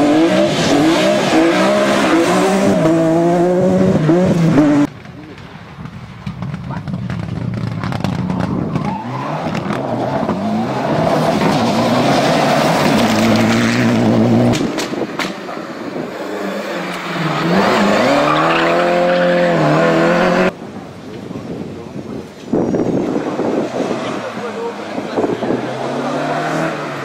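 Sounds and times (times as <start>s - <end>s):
rally car revving hard: 0.0s - 4.9s, 7.1s - 15.2s, 15.9s - 20.6s, 23.0s - 27.0s.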